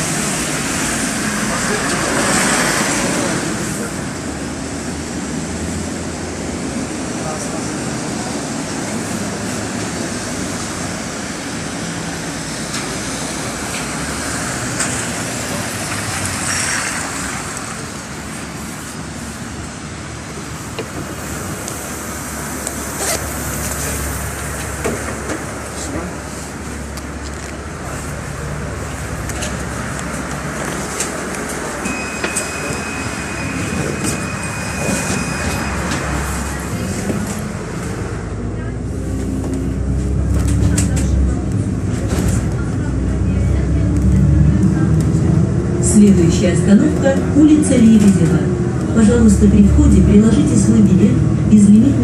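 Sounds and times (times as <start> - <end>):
bus engine running: 0.0 - 52.0
traffic on a wet road: 0.0 - 52.0
thin high tone: 31.8 - 36.2.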